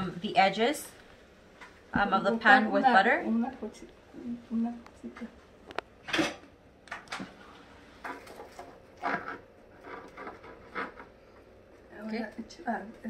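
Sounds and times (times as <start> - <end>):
spatula scraping caramel in pot: 8.1 - 11.5.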